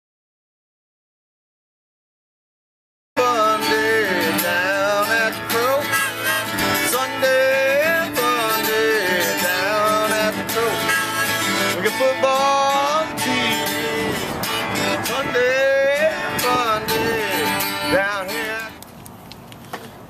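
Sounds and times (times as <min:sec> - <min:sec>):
harmonica melody: 0:03.2 - 0:18.7
strummed acoustic guitar: 0:03.2 - 0:18.8.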